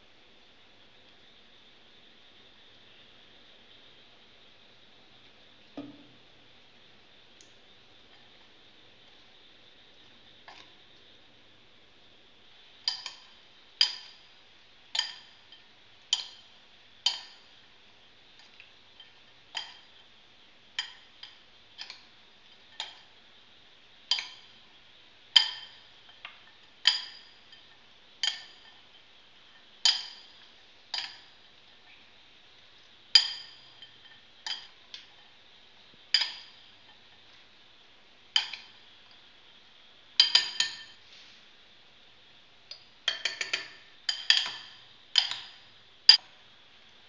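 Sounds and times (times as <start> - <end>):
metal spoons clinking on glass bowl: 40.2 - 41.0.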